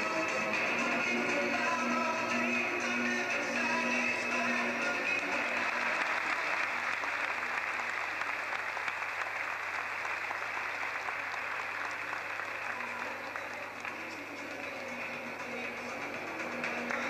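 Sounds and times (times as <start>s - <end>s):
audience applause: 4.8s - 15.7s.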